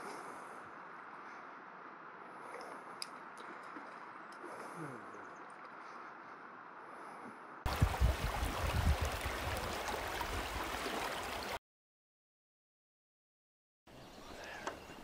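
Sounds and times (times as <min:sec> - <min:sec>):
creek water running: 0:07.7 - 0:11.6
water splashing and rumbling: 0:07.7 - 0:11.6.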